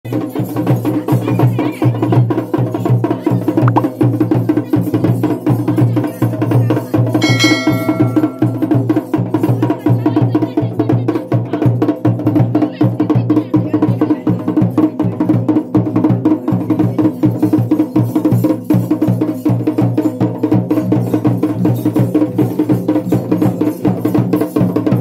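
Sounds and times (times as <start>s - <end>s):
fast rhythmic drumming: 0.1s - 25.0s
bell ringing: 7.2s - 8.8s.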